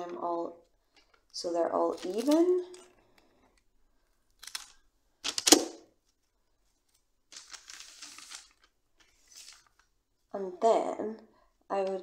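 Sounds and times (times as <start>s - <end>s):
soft rustling: 5.9s - 10.3s.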